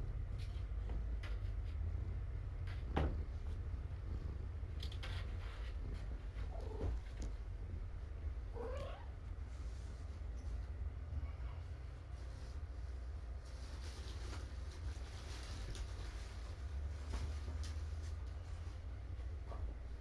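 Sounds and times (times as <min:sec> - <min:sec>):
low steady hum: 0:00.0 - 0:20.0
cat meowing: 0:08.5 - 0:09.2.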